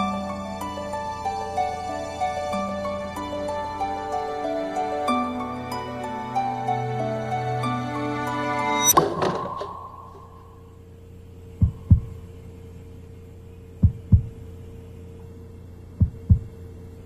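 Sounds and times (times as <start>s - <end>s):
music with ringing note: 0.0s - 10.8s
steady low hum: 0.0s - 17.0s
heartbeat thumps: 11.6s - 12.2s, 13.8s - 14.4s, 16.0s - 16.6s.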